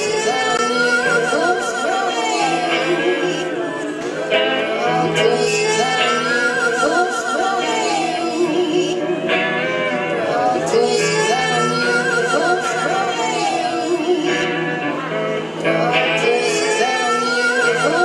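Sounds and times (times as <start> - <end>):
electric guitar: 0.0 - 18.0
person singing long wavering notes: 0.0 - 18.0.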